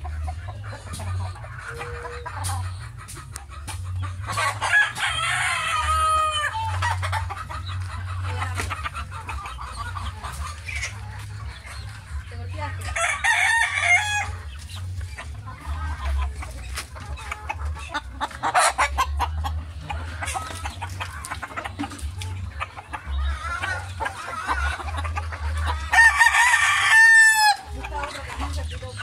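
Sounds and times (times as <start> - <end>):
chickens clucking: 0.0 - 29.0
rooster crowing: 25.9 - 27.6.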